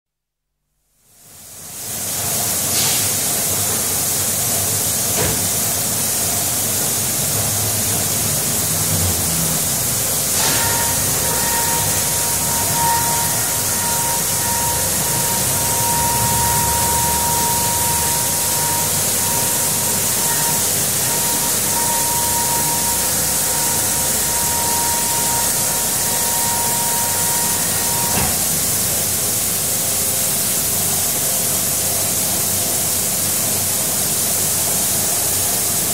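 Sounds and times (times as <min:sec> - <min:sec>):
machinery running: 0:06.7 - 0:29.8
steady whine: 0:08.7 - 0:29.2.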